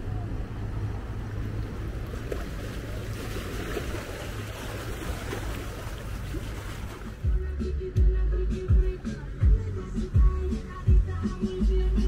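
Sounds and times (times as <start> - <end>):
water wash from wake: 0.0 - 7.3
boat engine drone: 0.0 - 12.0.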